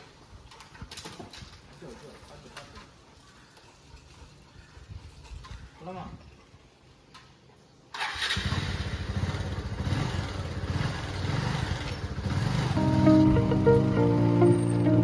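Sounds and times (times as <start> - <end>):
motorcycle engine running: 8.5 - 15.0
background music: 12.8 - 15.0.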